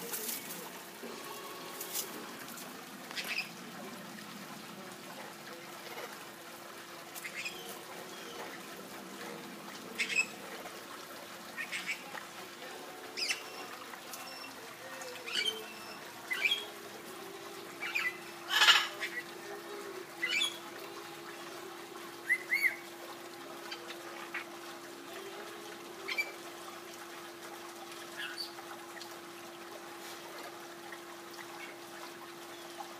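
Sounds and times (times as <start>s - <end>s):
faint steady hum: 0.0s - 32.9s
parrot squawks and chirps: 15.3s - 16.7s, 17.8s - 19.2s, 20.2s - 20.6s.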